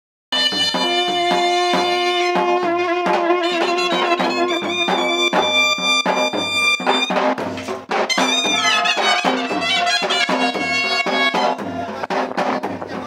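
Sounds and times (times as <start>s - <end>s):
drums beating steadily: 0.3s - 13.0s
brass horn held notes: 0.4s - 7.2s, 8.1s - 11.6s.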